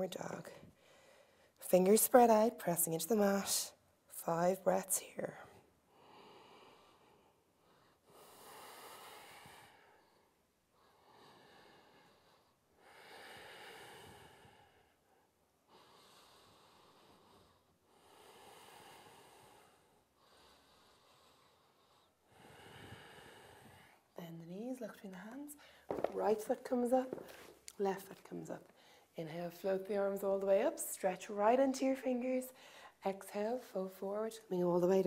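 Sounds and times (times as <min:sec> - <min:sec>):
woman breathing through the nose: 0:00.7 - 0:01.6, 0:05.9 - 0:15.1, 0:15.7 - 0:24.2, 0:32.6 - 0:33.0.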